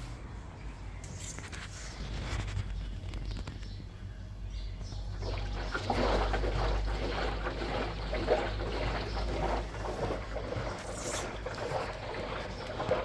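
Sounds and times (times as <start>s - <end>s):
steady low hum: 0.0s - 13.0s
water rushing into washing machine: 5.1s - 13.0s.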